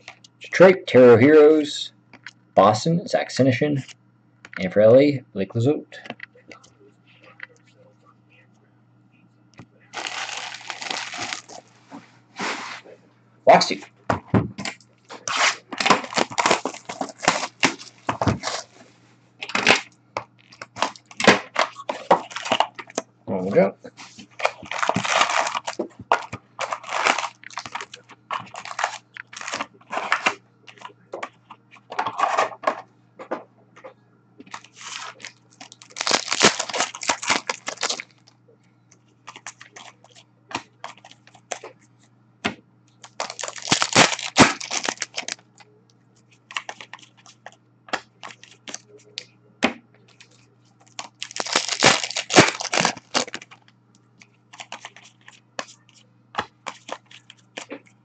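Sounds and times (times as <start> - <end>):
foil wrappers crinkling: 9.9 - 11.7, 14.6 - 18.8, 19.4 - 23.0, 24.0 - 30.9, 34.5 - 38.3, 39.2 - 40.2, 43.0 - 45.6, 46.4 - 49.2, 50.1 - 57.8.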